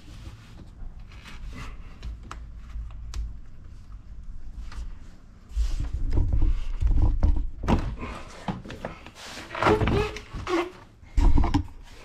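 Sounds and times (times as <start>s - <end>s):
rubber tube rubbing and scraping: 4.6s - 12.0s.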